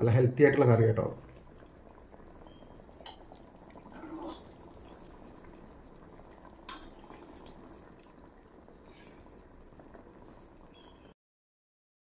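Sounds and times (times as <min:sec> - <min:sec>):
ladle scooping thick curry: 0:03.8 - 0:04.8.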